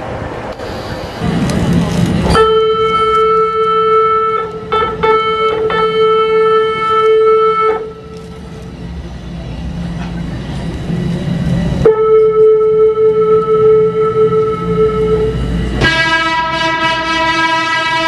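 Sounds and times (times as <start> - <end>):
train horn: 2.3 - 8.3, 11.8 - 18.0.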